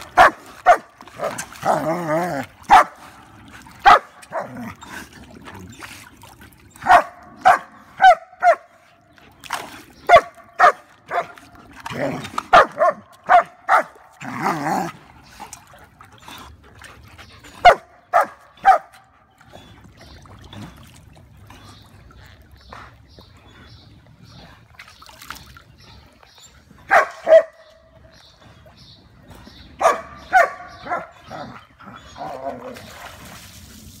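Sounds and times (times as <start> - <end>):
dog barking: 0.2 - 1.4, 2.7 - 3.0, 3.8 - 4.5, 6.8 - 8.7, 10.1 - 11.3, 12.5 - 14.0, 17.6 - 18.9, 26.9 - 27.6, 29.8 - 31.1.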